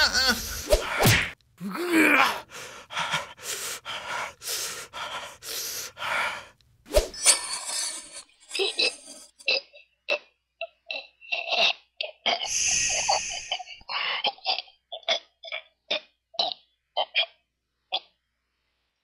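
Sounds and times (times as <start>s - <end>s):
voice-made coughing sputtering noises: 8.5s - 18.2s
voice-made hissing burst: 12.5s - 13.8s.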